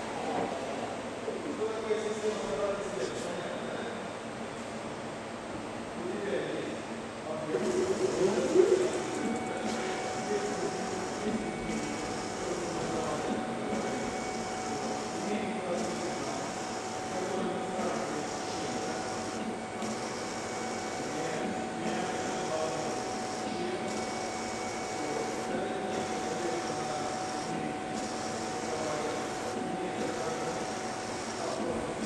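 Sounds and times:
machine drive running: 0:07.4 - 0:32.0
steady machine whine: 0:07.4 - 0:32.0.

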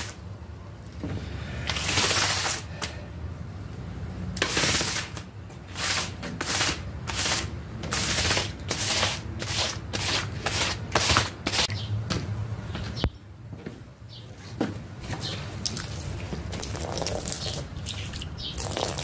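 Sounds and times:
squeegee scraping wet rug: 0:01.6 - 0:02.7, 0:04.4 - 0:11.7, 0:15.7 - 0:17.7.

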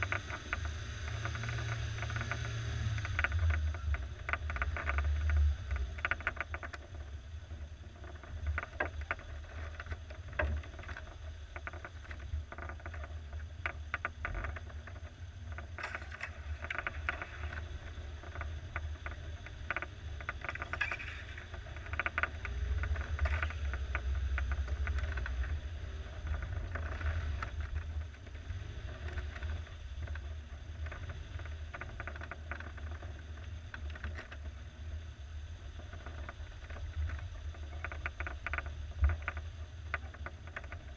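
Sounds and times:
car engine droning: 0:00.0 - 0:06.2.

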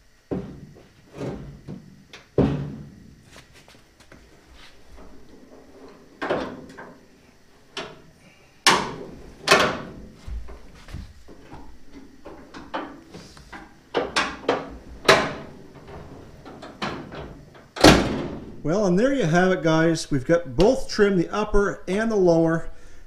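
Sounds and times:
steel tailgate clunking: 0:13.9 - 0:18.6.

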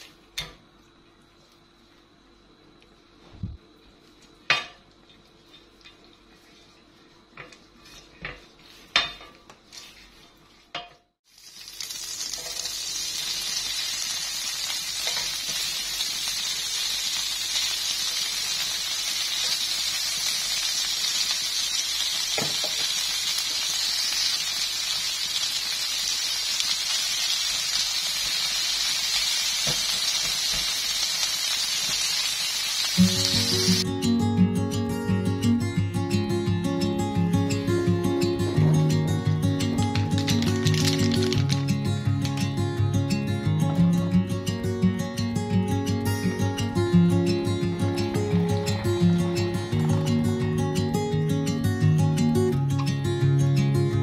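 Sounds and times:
shrimp sizzling in a pan: 0:11.2 - 0:33.8, 0:40.2 - 0:41.5.

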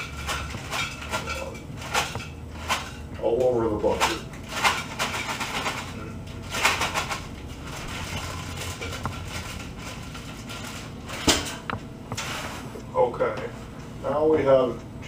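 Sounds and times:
plastic bag crinkling: 0:05.2 - 0:11.1.

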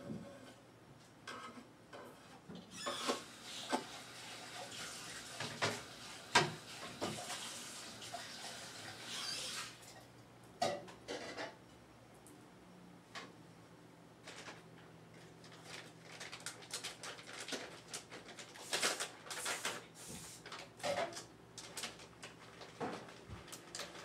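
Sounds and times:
tap water running into sink: 0:03.0 - 0:09.8.

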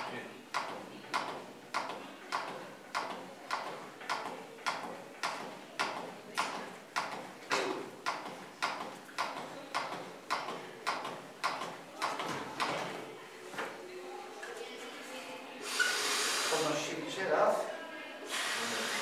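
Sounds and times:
cpr manikin clicking: 0:00.5 - 0:07.3, 0:08.0 - 0:12.8.

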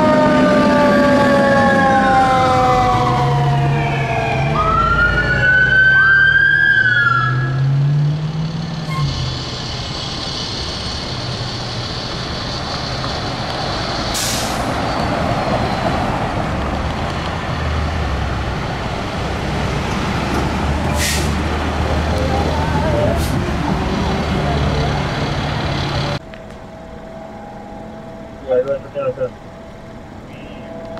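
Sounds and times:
emergency vehicle siren: 0:00.0 - 0:30.9
heavy engine noise: 0:00.0 - 0:30.9
passing traffic: 0:00.0 - 0:30.9
short hiss: 0:14.1 - 0:14.7.

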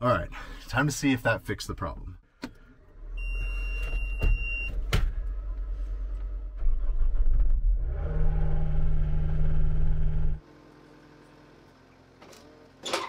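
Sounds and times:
engine cranking and running: 0:05.2 - 0:08.1.

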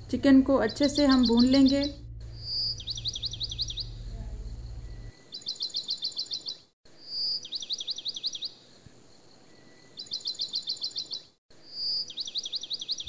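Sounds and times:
bird whistle and trill: 0:00.8 - 0:04.1, 0:04.8 - 0:08.6, 0:10.0 - 0:13.0.

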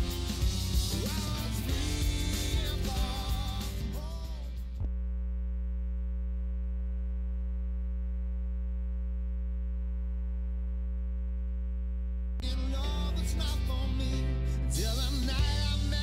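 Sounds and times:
music: 0:00.0 - 0:04.8, 0:12.4 - 0:16.0
electrical mains hum: 0:04.8 - 0:12.4.

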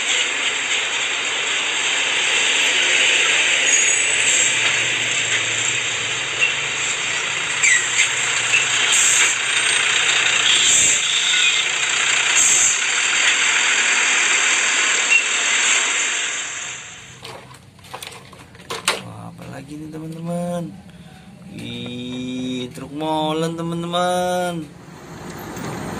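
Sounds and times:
truck engine and road noise: 0:00.0 - 0:25.9
short squeaks: 0:07.6 - 0:09.8.

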